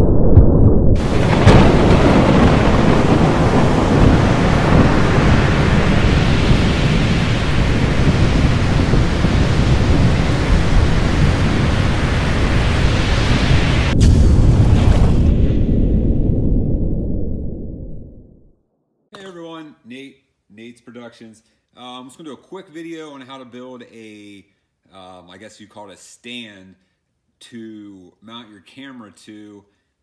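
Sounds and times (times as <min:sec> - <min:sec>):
sharp crack: 0:00.0 - 0:06.2, 0:13.8 - 0:16.2
deep thunder-like rumbling: 0:00.0 - 0:18.6
storm noise rushing: 0:00.0 - 0:18.6.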